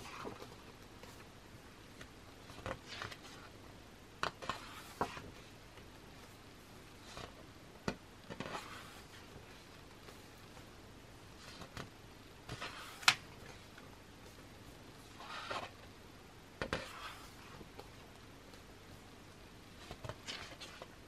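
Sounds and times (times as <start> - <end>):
paper pages turning: 2.0 - 3.5, 12.5 - 13.7.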